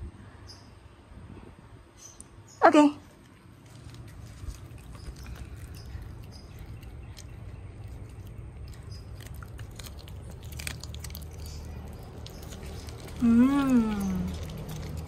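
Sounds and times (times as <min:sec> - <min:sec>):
dog chewing and crunching: 0:03.2 - 0:15.0.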